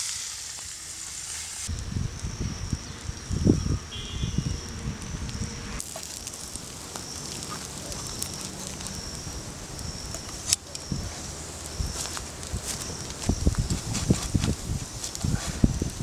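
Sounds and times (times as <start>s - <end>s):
campfire crackling: 0.0s - 16.0s.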